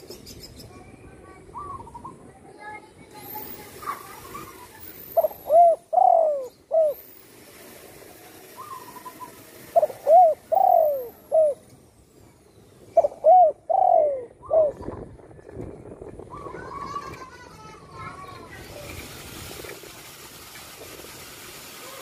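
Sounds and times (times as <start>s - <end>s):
dove cooing: 5.1s - 7.0s, 8.6s - 11.6s, 13.0s - 15.0s.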